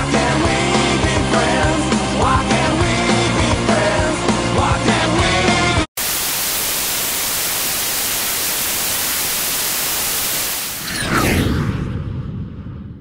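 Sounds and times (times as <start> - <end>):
music: 0.0 - 5.9
white noise hiss: 6.0 - 10.8.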